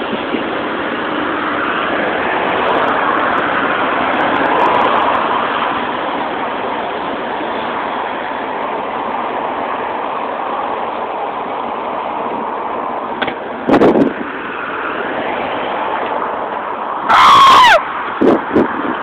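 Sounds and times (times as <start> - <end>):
road traffic rushing: 0.0 - 19.0.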